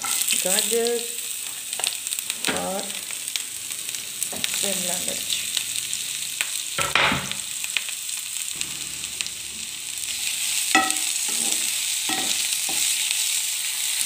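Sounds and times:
vegetables sizzling in oil: 0.0s - 14.0s
spatula scraping pan: 8.6s - 13.3s.

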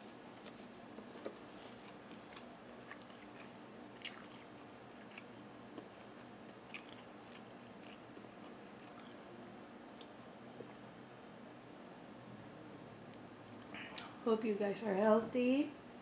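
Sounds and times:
faint steady hum: 0.0s - 16.0s
person chewing food: 0.3s - 9.3s.

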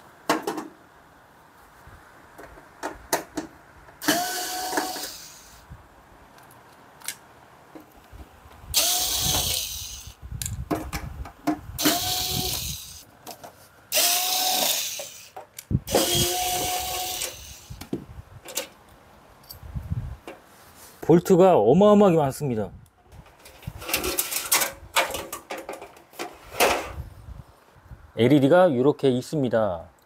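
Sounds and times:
electric screwdriver whining: 4.0s - 5.6s, 8.7s - 10.2s, 11.8s - 13.0s, 13.9s - 17.8s.

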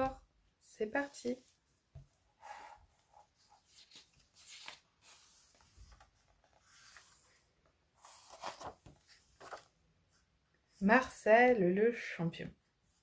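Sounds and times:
book pages rustling: 2.9s - 10.2s.

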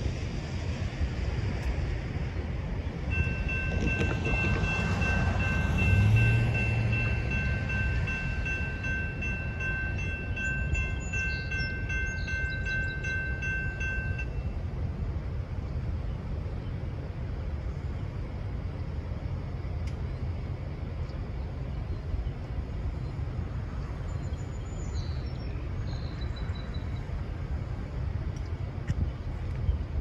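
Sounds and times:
bell ringing: 3.1s - 14.4s.

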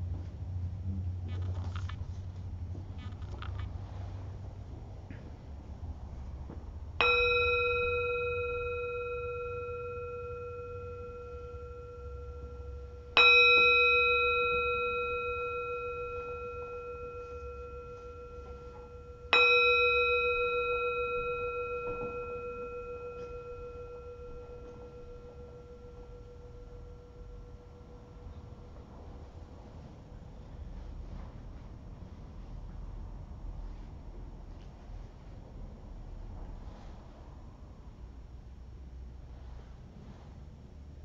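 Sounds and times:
singing bowl ringing: 6.9s - 31.2s.

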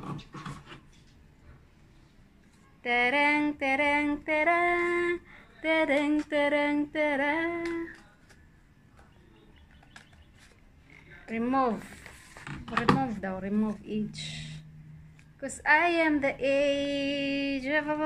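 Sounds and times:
woman singing without words: 2.8s - 8.0s.

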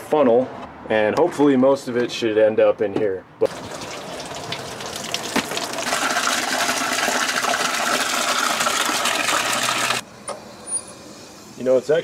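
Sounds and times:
water splashing into pan: 3.5s - 10.0s.

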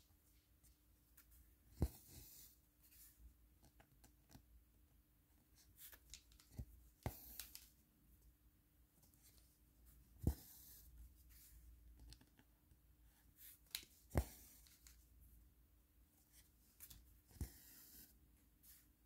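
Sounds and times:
small sharp clicks and taps: 6.0s - 7.8s.

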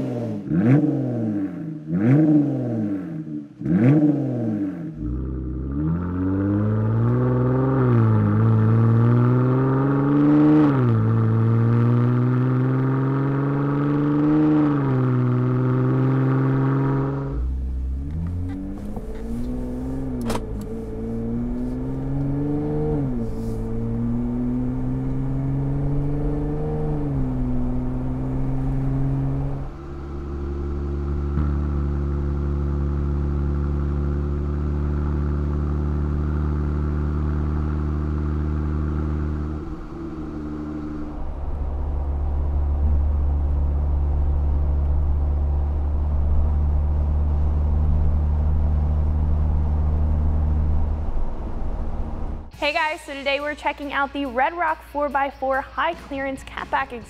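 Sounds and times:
car engine revving: 0.0s - 54.4s
car engine idling: 15.1s - 55.1s.

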